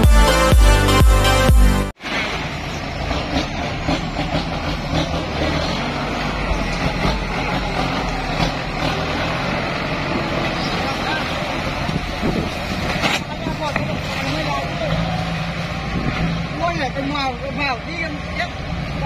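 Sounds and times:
electronic intro music: 0.0 - 2.0
tractor diesel engine running: 0.0 - 19.0.

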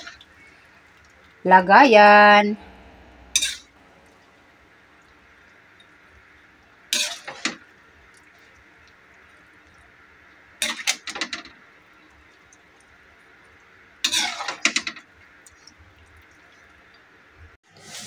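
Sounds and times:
metal spoon scraping a wok: 3.3 - 3.7, 7.0 - 7.5, 14.1 - 14.6.

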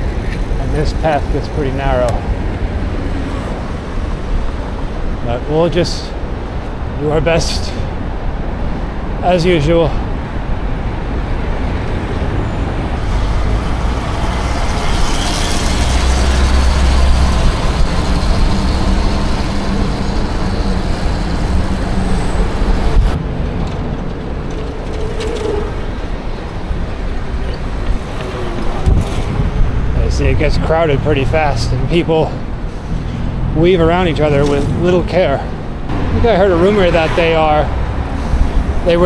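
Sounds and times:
traffic rushing past: 0.0 - 39.0
deep rumble: 11.6 - 38.9.

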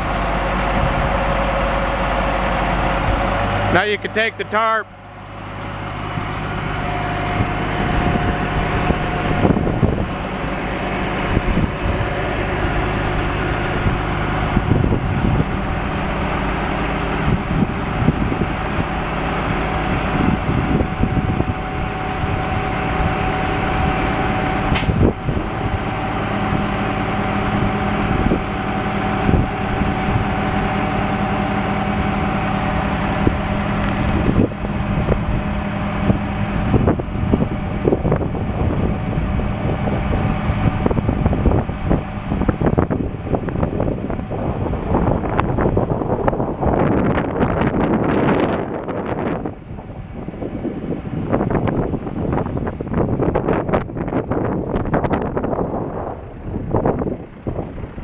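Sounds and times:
diesel engine running: 0.0 - 58.0
sharp click: 24.7 - 25.0.

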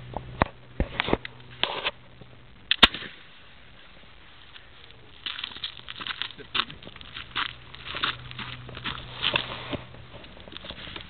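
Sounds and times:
loud gunshot crack: 2.7 - 3.2.

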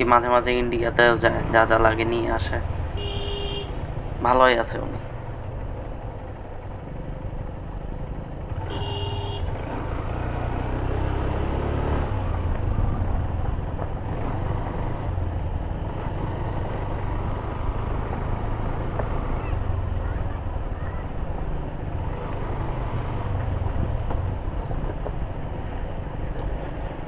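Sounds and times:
motorcycle engine rumble: 0.0 - 27.0
short horn beep: 3.0 - 3.8, 8.6 - 9.5.

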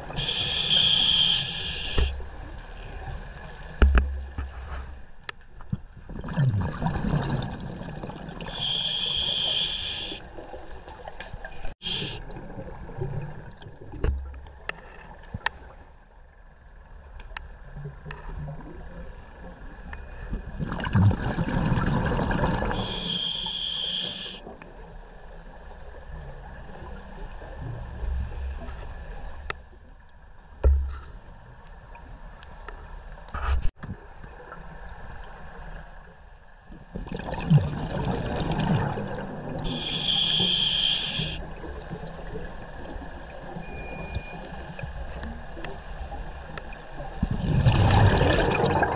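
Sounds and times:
regulator hiss on inhale: 0.2 - 2.2, 8.5 - 10.2, 11.8 - 12.2, 22.7 - 24.4, 39.7 - 41.4
diver exhaling bubbles: 20.6 - 24.3, 47.2 - 48.9.

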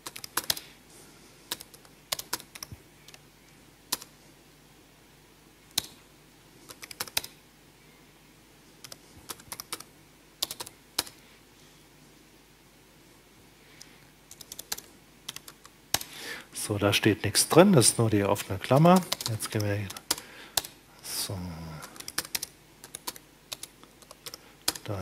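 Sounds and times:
computer keyboard typing: 0.0 - 0.6, 1.5 - 3.2, 3.9 - 4.1, 6.7 - 7.4, 8.8 - 11.2, 14.3 - 16.1, 18.7 - 20.8, 21.8 - 25.0.

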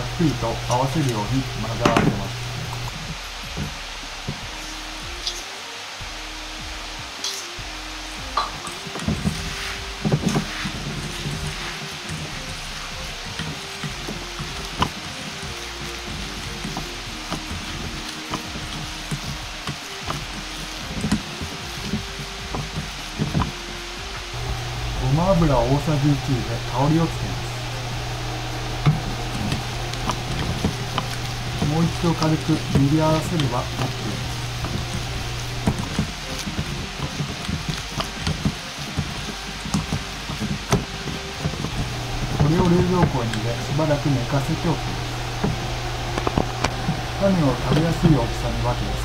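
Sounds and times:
steady hiss: 0.0 - 49.0
hands kneading wet meat mixture: 24.9 - 49.0.

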